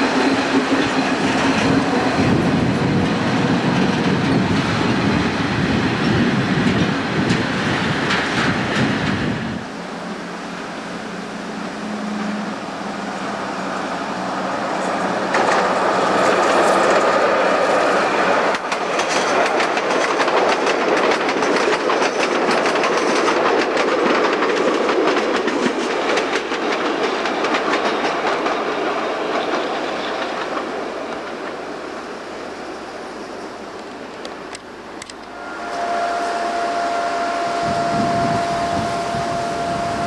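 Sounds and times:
diesel railbus passing: 0.0s - 40.0s
wheels clicking over rail joints: 14.8s - 31.9s.

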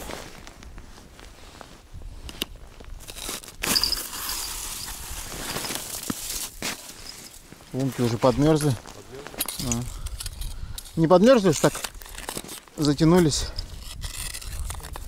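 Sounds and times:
crunching and scraping of ice: 0.0s - 15.0s
clothing rustle: 4.4s - 9.3s.

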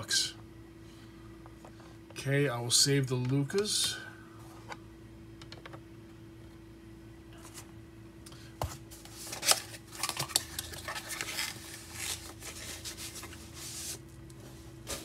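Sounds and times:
packaging rustling and crinkling: 9.0s - 14.0s.

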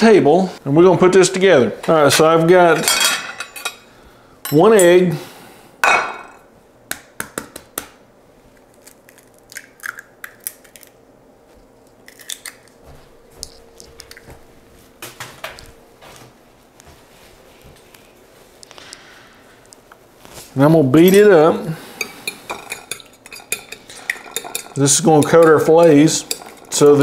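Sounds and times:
eggshell clicks and crunches: 8.6s - 11.0s, 11.8s - 12.8s.

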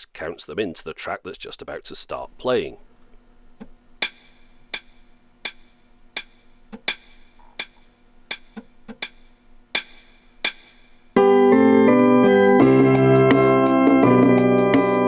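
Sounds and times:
percussion count-in clicks: 3.6s - 10.8s.

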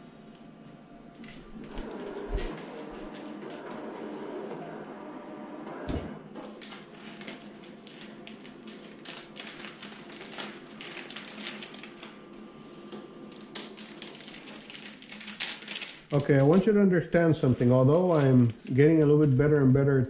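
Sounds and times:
cutting plotter motor whirring: 0.6s - 15.0s
plastic film crinkling: 1.3s - 3.7s, 6.4s - 12.5s, 13.3s - 16.8s, 17.4s - 19.7s.

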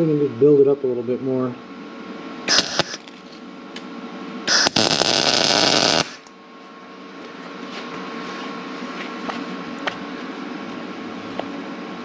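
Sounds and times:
machine hum: 1.6s - 7.5s
welding arc crackling: 2.5s - 3.2s, 4.5s - 6.3s.

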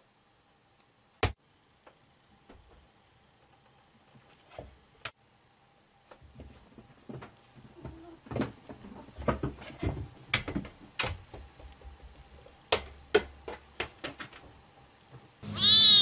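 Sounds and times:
cat meowing: 15.4s - 16.0s.

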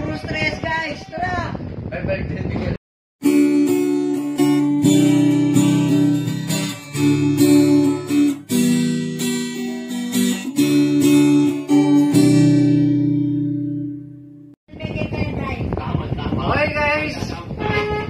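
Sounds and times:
acoustic guitar strumming chords: 3.2s - 14.5s.

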